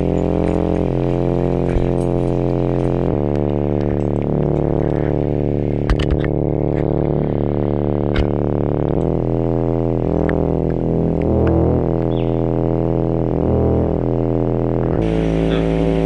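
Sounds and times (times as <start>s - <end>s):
low synthesizer chords: 0.0s - 16.0s
sharp percussive clicks: 5.8s - 7.1s.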